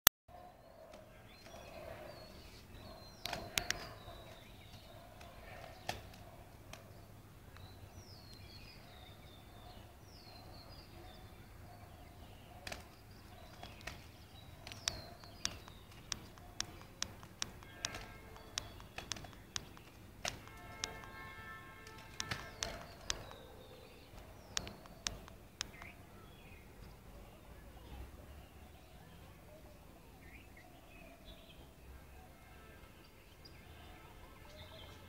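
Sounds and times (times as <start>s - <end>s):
small birds chirping: 0.3s - 35.0s
sharp clicks: 3.1s - 6.9s, 12.6s - 23.5s, 24.2s - 26.0s.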